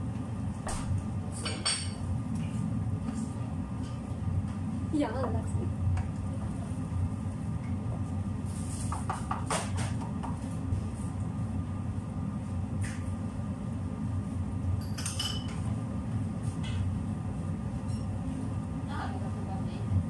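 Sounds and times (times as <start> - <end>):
steady low hum: 0.0 - 20.0
spatula and pots clinking: 14.8 - 15.6.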